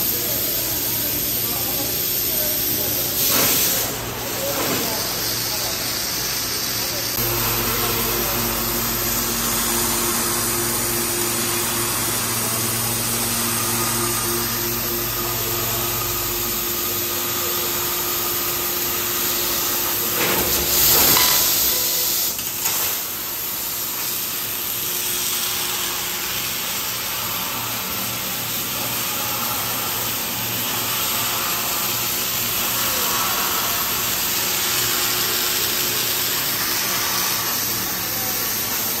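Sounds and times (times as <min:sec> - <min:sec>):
laser cutter air hiss: 0:00.0 - 0:39.0
low machine hum: 0:06.8 - 0:20.6.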